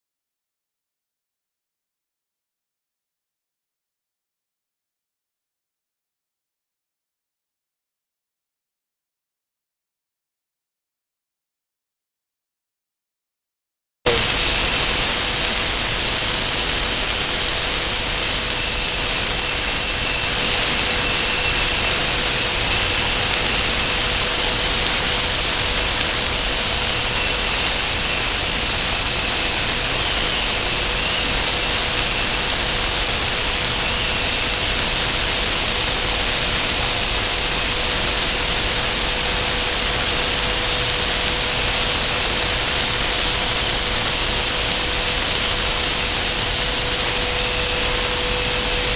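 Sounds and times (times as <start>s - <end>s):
high-pitched machine whine: 14.1s - 48.9s
low hum: 14.1s - 48.9s.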